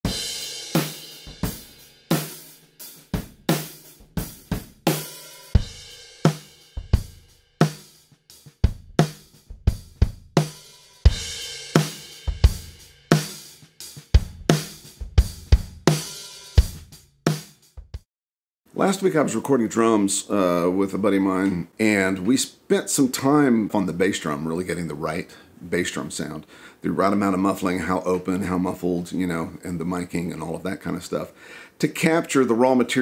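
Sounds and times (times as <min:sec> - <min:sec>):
bass drum: 0:00.1 - 0:02.3, 0:03.0 - 0:07.8, 0:08.4 - 0:18.0
snare drum: 0:00.1 - 0:05.7, 0:06.3 - 0:18.0.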